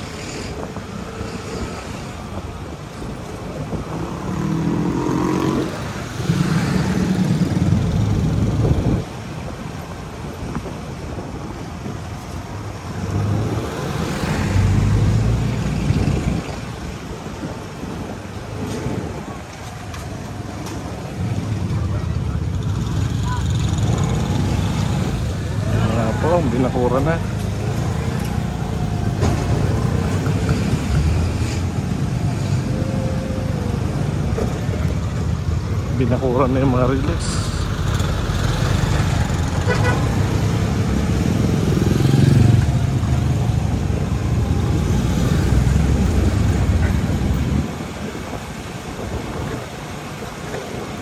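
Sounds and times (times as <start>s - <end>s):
wind buffeting microphone: 0.0s - 36.2s, 37.1s - 51.0s
road noise: 0.0s - 51.0s.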